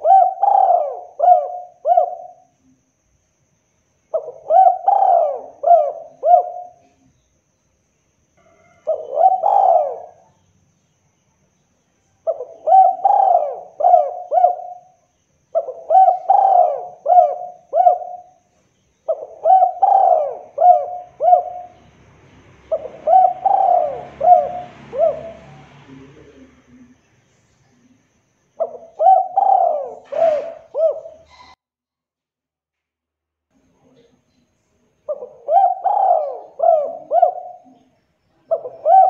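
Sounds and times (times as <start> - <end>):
dove cooing: 0.0 - 2.5, 4.1 - 7.1, 8.5 - 10.4, 12.2 - 22.0, 22.6 - 26.9, 28.6 - 31.6, 35.1 - 39.0.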